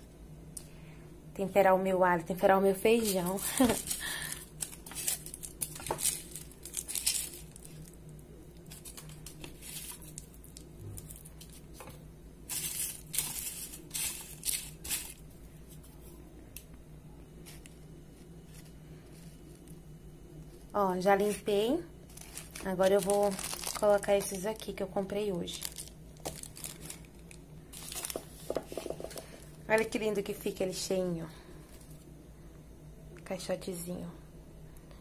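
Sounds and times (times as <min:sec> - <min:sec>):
garlic skins rustling and crinkling: 0:02.8 - 0:08.0, 0:08.6 - 0:11.9, 0:12.5 - 0:15.9, 0:21.1 - 0:30.0.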